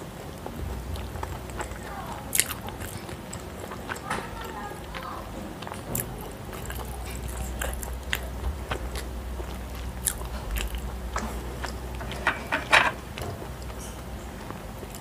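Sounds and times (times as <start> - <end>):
person chewing food: 0.0 - 15.0.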